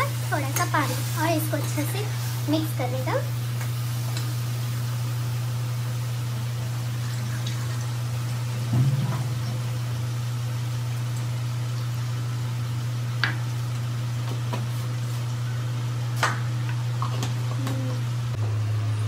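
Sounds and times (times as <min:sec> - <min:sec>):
low motor hum: 0:08.0 - 0:19.0.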